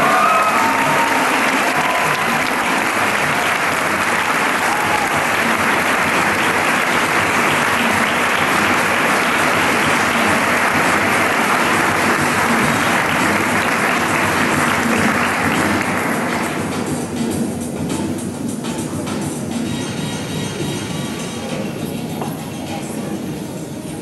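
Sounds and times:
audience applauding: 0.0 - 16.7.

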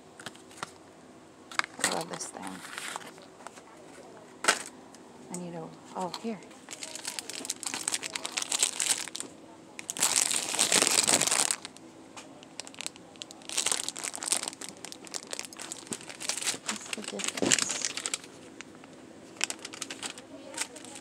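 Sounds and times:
plastic packaging crinkling: 6.0 - 21.0.

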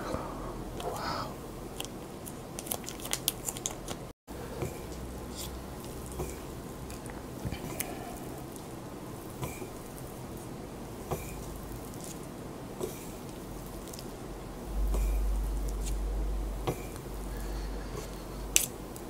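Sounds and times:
chopsticks mixing noodles: 0.7 - 14.3, 16.6 - 19.0
plastic packet crinkling: 1.8 - 4.1.

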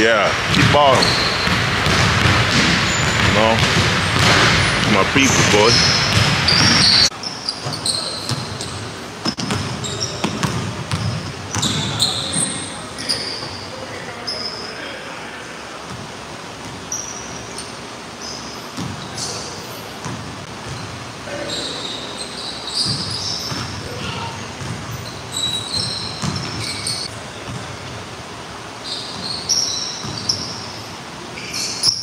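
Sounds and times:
sneakers squeaking: 0.4 - 15.1, 15.8 - 32.0
basketball bouncing on wooden floor: 0.5 - 7.0, 7.6 - 12.0, 24.6 - 26.8.

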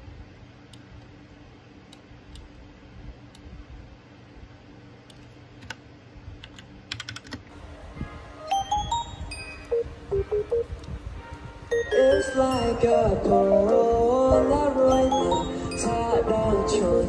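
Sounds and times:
mechanical keyboard keys clacking: 6.4 - 7.4.

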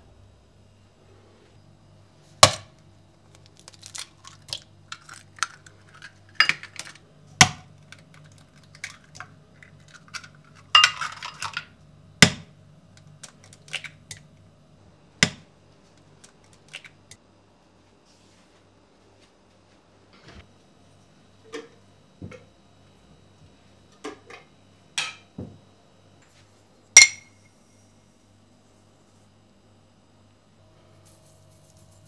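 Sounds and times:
low steady hum: 0.0 - 32.0
dishes and utensils clinking: 5.0 - 7.0, 10.0 - 11.6.

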